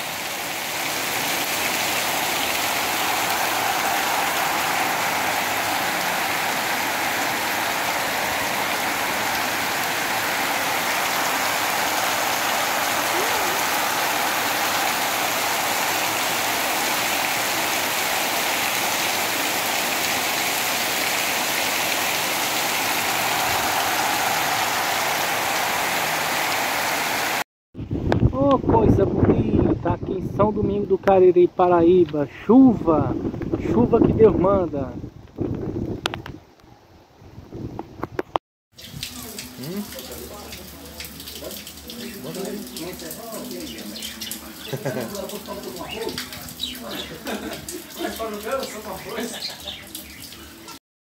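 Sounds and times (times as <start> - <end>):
heavy rain on stone street: 0.0 - 27.4, 38.7 - 50.8.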